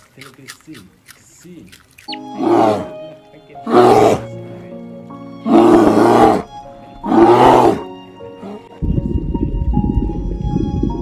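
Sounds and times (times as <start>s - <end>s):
background music: 2.0s - 11.0s
bear roaring: 2.3s - 3.0s, 3.6s - 4.3s, 5.4s - 8.7s.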